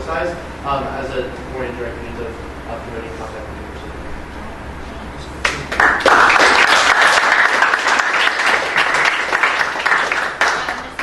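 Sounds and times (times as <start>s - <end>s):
audience applauding: 5.4s - 11.0s.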